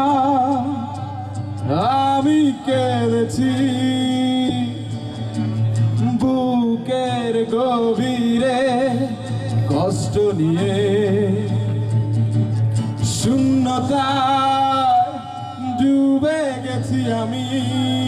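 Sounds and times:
man singing into a microphone: 0.0s - 12.2s, 12.8s - 18.0s.

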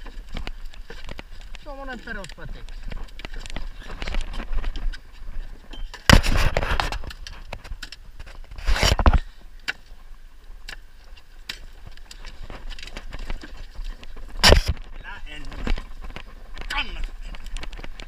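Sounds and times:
fishing gear rustling and scraping: 0.0s - 18.0s
rough scrapes in wooden boat: 8.3s - 9.2s.

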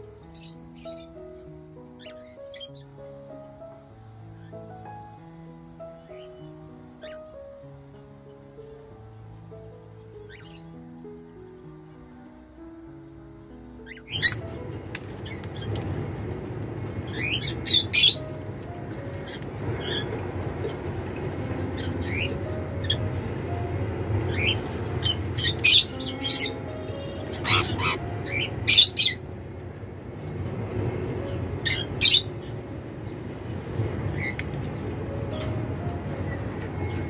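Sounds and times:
cockatiels chirping: 13.9s - 15.8s, 17.0s - 18.4s, 21.7s - 23.1s, 24.3s - 29.2s, 31.6s - 32.5s.

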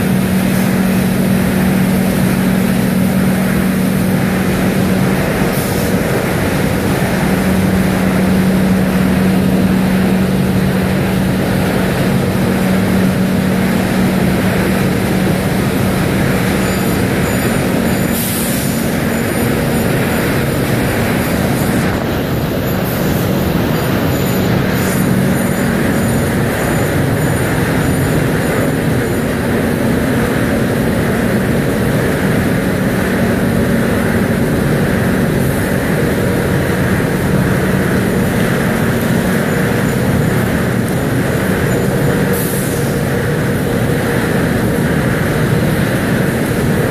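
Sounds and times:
machine din with low hum: 0.0s - 46.9s.

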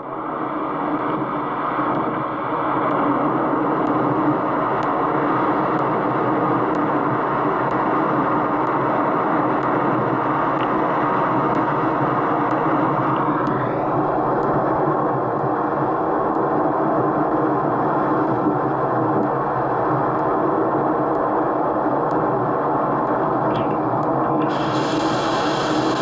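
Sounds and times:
strong wind blowing: 1.1s - 26.0s
faint light ticks: 3.8s - 4.0s, 4.8s - 5.0s, 5.7s - 6.0s, 6.7s - 6.9s.

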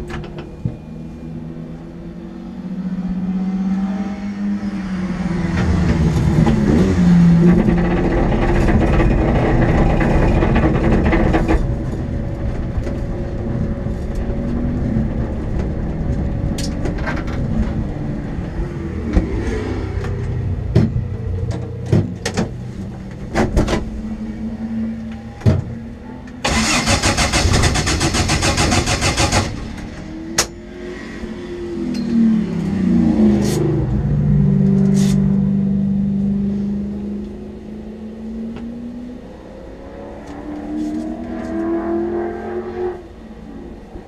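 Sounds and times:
race cars passing: 0.0s - 9.7s, 11.6s - 26.8s, 29.5s - 44.0s
starter motor cranking: 26.4s - 29.6s.

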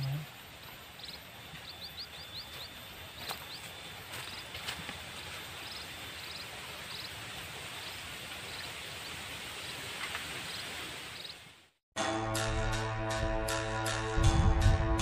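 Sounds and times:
steady background hiss: 0.0s - 11.7s.

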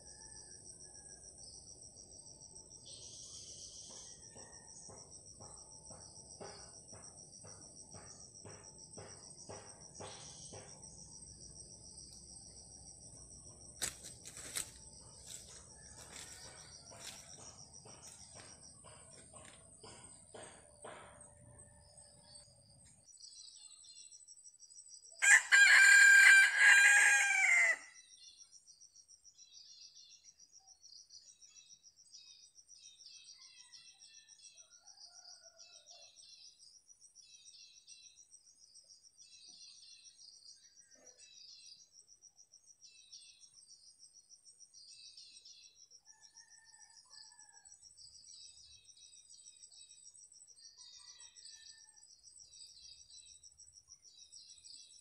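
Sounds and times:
faint insect trill: 0.0s - 19.6s, 21.2s - 55.0s
rooster crowing: 25.2s - 28.0s.

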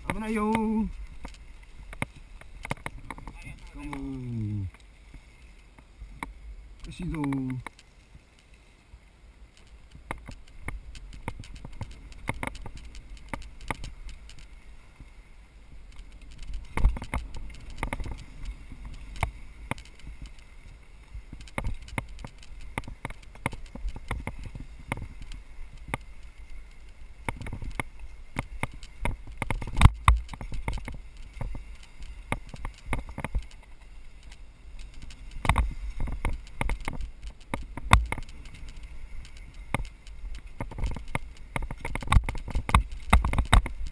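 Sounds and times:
bike rattling over bumps: 15.8s - 43.9s.

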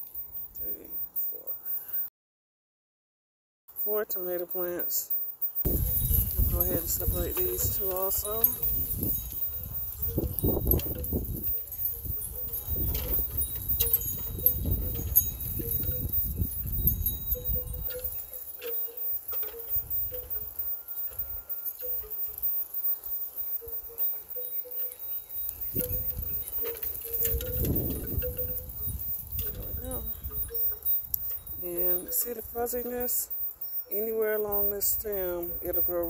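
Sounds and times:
potting soil crumbling and rustling: 5.7s - 20.7s.

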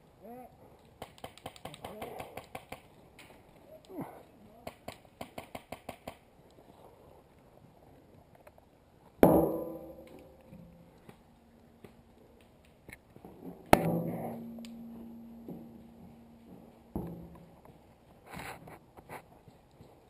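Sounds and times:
knocks on hollow barrel: 9.2s - 10.8s, 13.8s - 17.6s.

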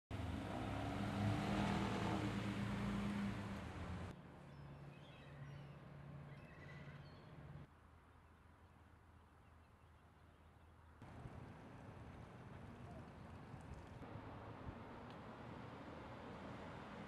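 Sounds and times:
car engine accelerating: 0.1s - 4.1s.

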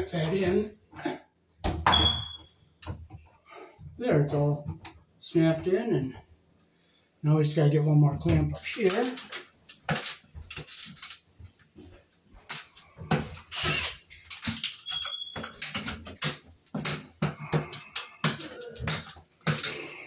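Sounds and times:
high whistle-like tone: 1.9s - 2.5s, 14.8s - 15.4s
knocks clicks and rustles of tools: 8.3s - 20.0s.

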